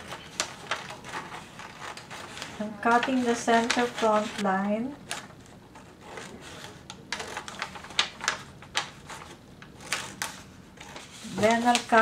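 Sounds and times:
scissors snipping paper: 0.0 - 4.4.

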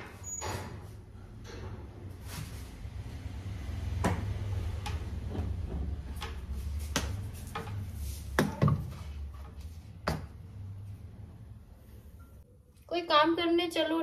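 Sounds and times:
utensils and cupboards knocking: 3.8 - 10.4.

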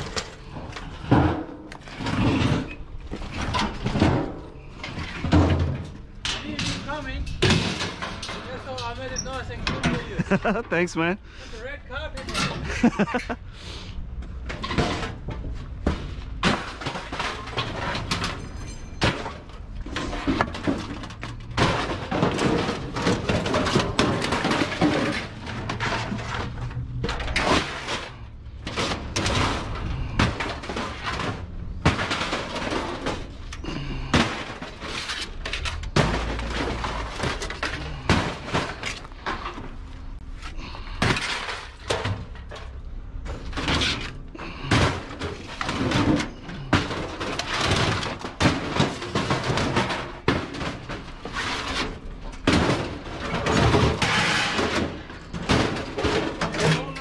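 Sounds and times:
scrap metal clattering: 0.0 - 10.8, 14.2 - 57.0.

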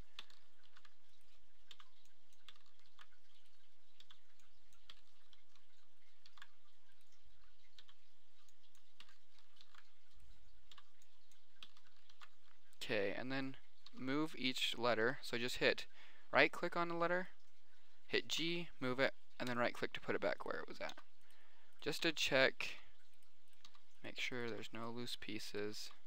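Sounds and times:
computer mouse clicks: 0.2 - 12.4, 23.6 - 23.8.

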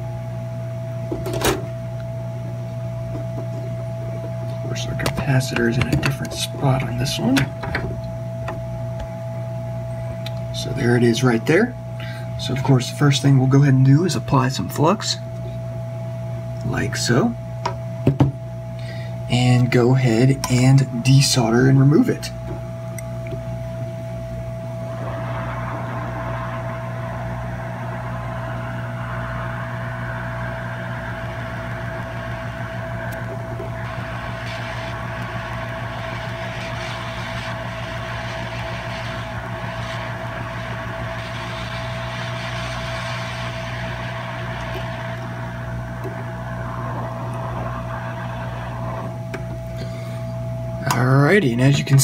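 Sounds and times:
blower hum: 0.0 - 52.0
hiss of hot air: 24.9 - 50.0.

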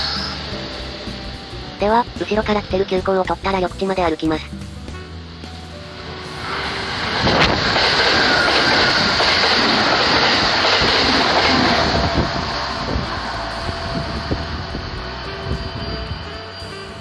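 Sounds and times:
train passing at speed: 0.0 - 3.7, 4.9 - 17.0
rail clicks: 6.5 - 17.0.

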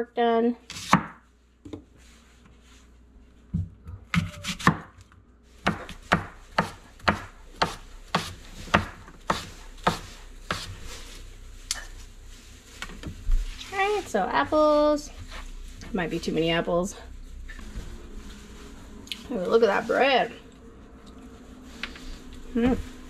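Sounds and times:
knife slicing apples on board: 0.7 - 1.2, 4.1 - 4.9, 5.6 - 10.8.

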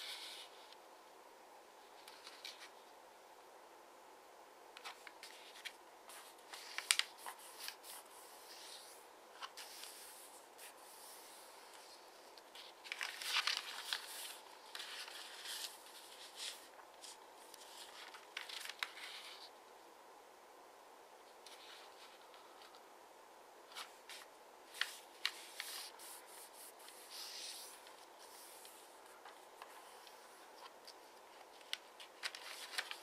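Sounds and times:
paper rustling and crinkling: 1.9 - 2.8, 4.8 - 19.5, 23.7 - 33.0.

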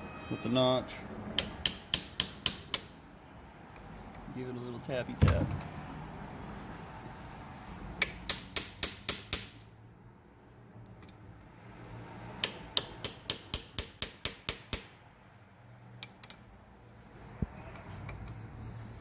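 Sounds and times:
hammer tapping on steel punch: 1.4 - 2.9, 8.0 - 9.6, 12.4 - 14.9.

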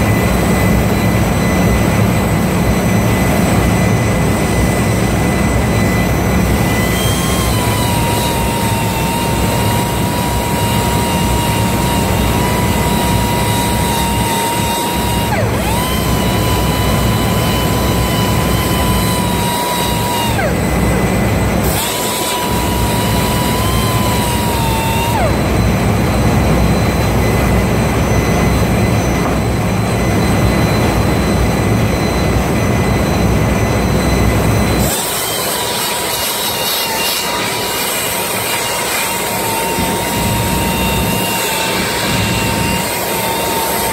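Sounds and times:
high motor whine: 0.0 - 43.9
grinder grinding hiss: 6.5 - 25.5, 34.8 - 43.9.

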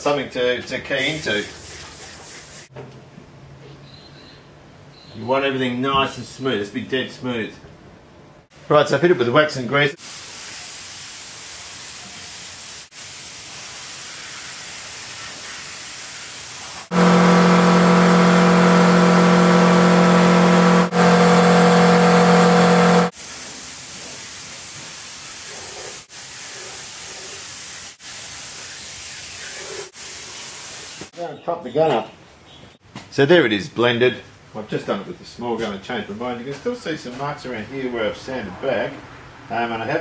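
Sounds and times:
paint spray gun hissing: 10.0 - 23.6
loud humming drone: 16.9 - 23.1.

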